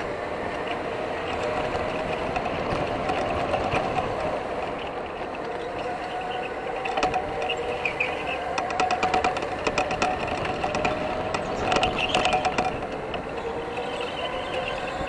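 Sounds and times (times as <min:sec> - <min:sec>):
electric motor whine: 0:00.0 - 0:15.0
go-kart rumble: 0:00.0 - 0:15.0
sharp clicks or rattles: 0:06.9 - 0:14.2.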